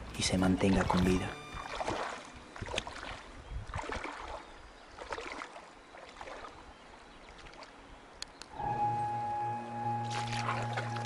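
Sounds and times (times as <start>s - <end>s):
feet splashing in water: 0.7s - 7.8s, 10.0s - 11.0s.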